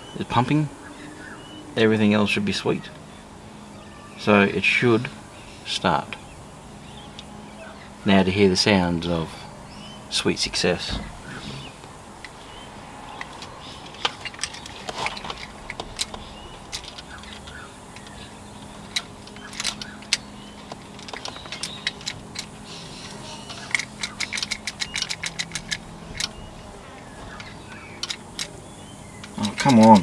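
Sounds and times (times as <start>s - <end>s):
steady low hum: 0.0s - 30.0s
ignition clicking and rattling: 10.6s - 30.0s.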